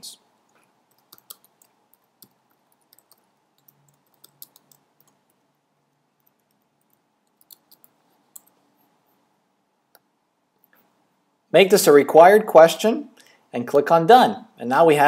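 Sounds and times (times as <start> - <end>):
keyboard typing: 0.5 - 5.4, 6.2 - 8.6.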